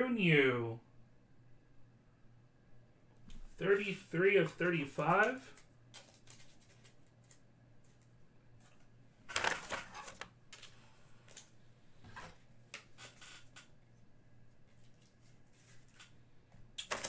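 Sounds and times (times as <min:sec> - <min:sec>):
trading cards rustling scrape: 0:06.0 - 0:07.4.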